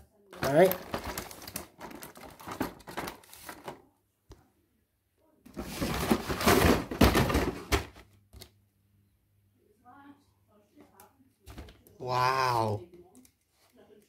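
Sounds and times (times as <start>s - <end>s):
cardboard rustling and scraping: 5.5s - 7.9s.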